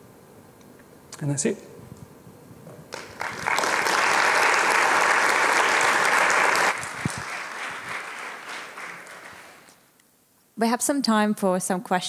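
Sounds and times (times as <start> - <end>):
audience applauding: 2.9 - 9.8.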